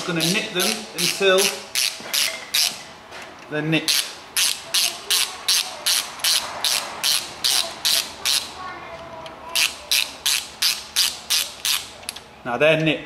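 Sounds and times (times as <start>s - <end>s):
socket ratchet clicking: 0.2s - 2.8s, 3.9s - 8.5s, 9.6s - 12.2s.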